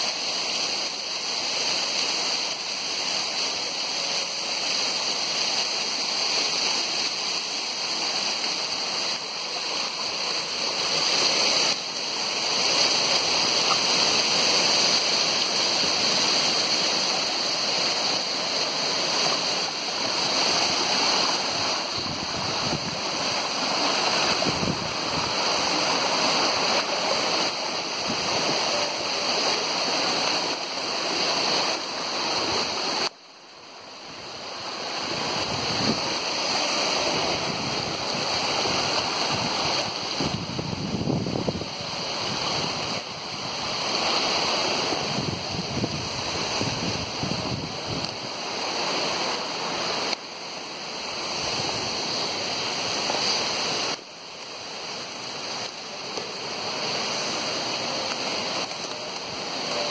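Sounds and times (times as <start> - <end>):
waterfall rushing: 0.0 - 59.9.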